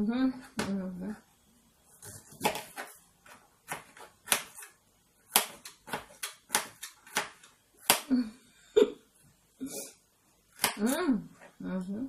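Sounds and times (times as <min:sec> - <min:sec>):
knife chopping on cutting board: 0:02.3 - 0:03.0, 0:03.6 - 0:04.7, 0:05.3 - 0:08.1.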